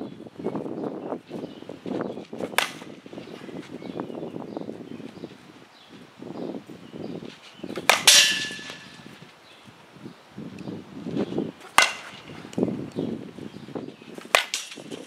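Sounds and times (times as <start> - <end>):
bat striking softball: 2.4 - 2.9, 7.7 - 9.2, 11.6 - 12.4, 14.2 - 15.0.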